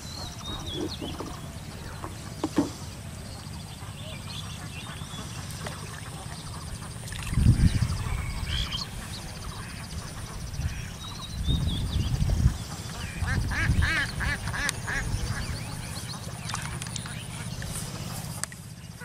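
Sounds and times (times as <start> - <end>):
birds chirping: 0.0 - 19.0
low gusty rumble: 6.2 - 18.1.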